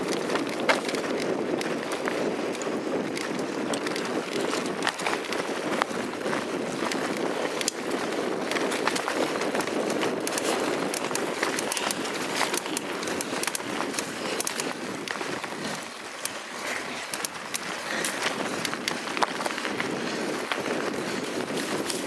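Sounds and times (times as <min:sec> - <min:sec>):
bike clicks and rattles: 0:00.0 - 0:22.0
tyres rumbling on dirt: 0:00.0 - 0:22.0.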